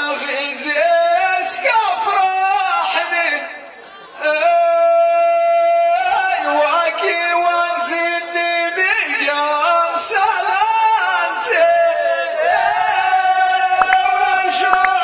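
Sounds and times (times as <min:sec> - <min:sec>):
man singing into a microphone: 0:00.0 - 0:03.6, 0:04.2 - 0:15.0.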